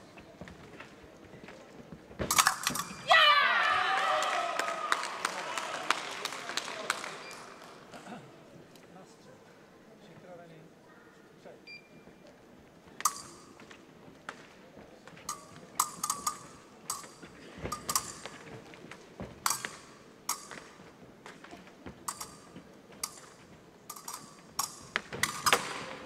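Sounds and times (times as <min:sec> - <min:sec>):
fencers' footwork: 0:00.0 - 0:03.9, 0:12.1 - 0:26.0
fencing blades clashing: 0:02.2 - 0:03.2, 0:13.0 - 0:14.4, 0:15.1 - 0:26.0.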